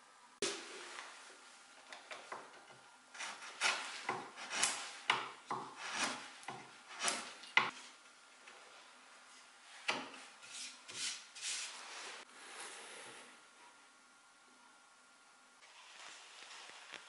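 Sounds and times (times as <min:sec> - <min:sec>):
chisel scraping wood: 0:02.4 - 0:07.9.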